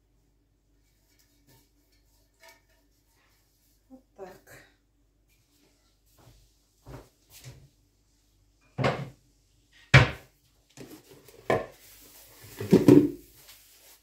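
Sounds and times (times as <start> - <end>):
knocks and thuds of objects set down: 8.8 - 9.2, 12.6 - 13.2.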